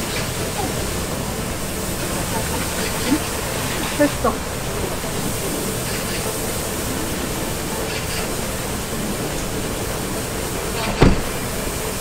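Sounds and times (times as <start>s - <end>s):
pressure washer spray hissing: 0.0s - 12.0s
thump: 10.9s - 11.3s.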